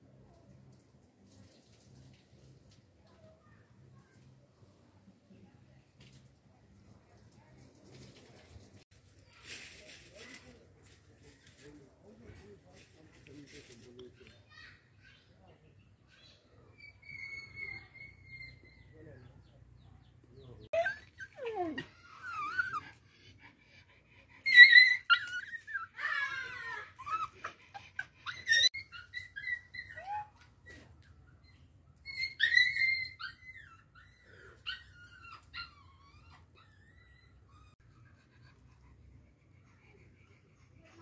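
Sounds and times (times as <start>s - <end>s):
dog high-pitched cries: 16.8s - 18.8s, 20.8s - 22.9s, 24.4s - 30.5s, 31.4s - 37.8s.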